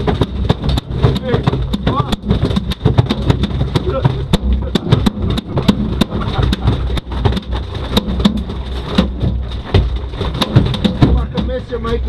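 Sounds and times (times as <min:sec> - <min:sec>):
sharp clicks and knocks: 0:00.0 - 0:12.0
steady low rumble: 0:00.0 - 0:12.0.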